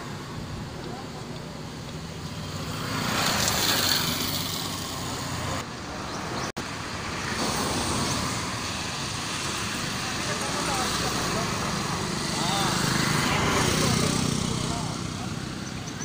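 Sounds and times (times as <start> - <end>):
vehicles passing on street: 0.0 - 16.0.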